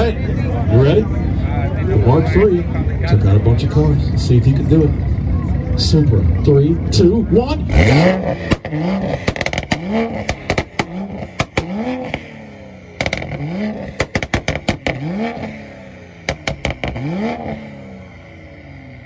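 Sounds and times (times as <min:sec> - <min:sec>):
car engine revving: 0:00.0 - 0:19.0
exhaust pops and cracks: 0:08.5 - 0:12.2, 0:13.0 - 0:15.0, 0:16.3 - 0:17.1.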